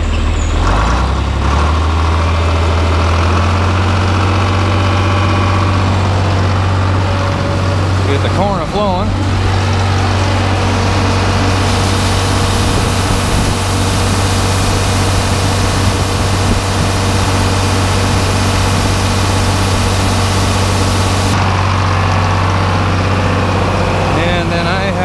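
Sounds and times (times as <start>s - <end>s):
tractor engine idling: 0.0s - 25.0s
corn pouring hiss: 11.4s - 21.4s.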